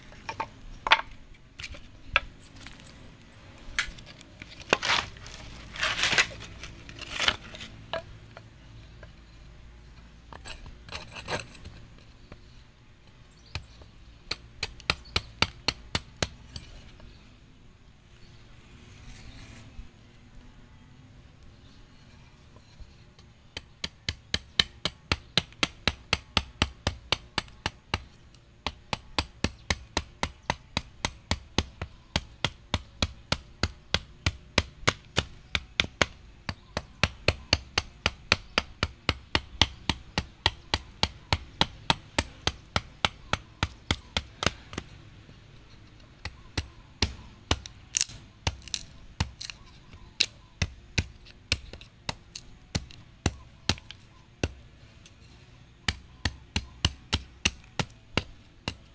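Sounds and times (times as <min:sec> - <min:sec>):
hand axe chopping wood: 0:04.6 - 0:07.7.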